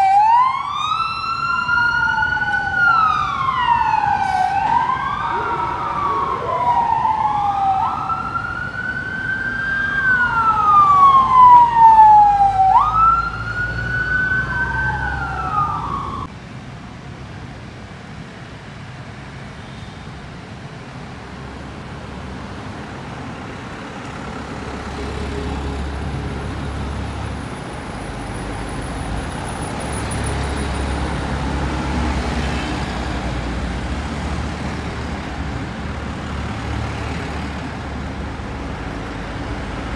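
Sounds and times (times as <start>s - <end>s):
police siren wailing: 0.0s - 16.3s
minibuses driving past: 0.0s - 39.9s.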